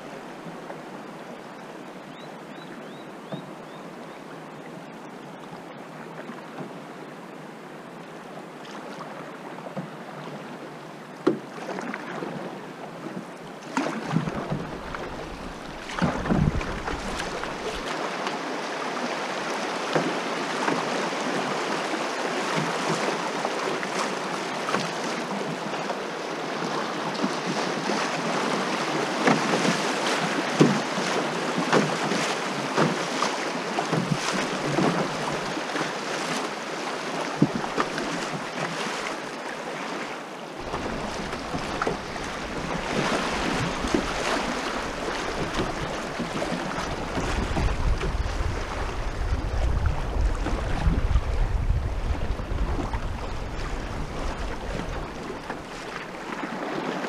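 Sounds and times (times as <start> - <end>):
water splashing against canoe hull: 13.6 - 18.4, 19.8 - 25.6, 27.1 - 57.0
river water rushing over riffles: 13.6 - 57.0
wind buffeting microphone: 14.4 - 17.9, 40.6 - 55.8.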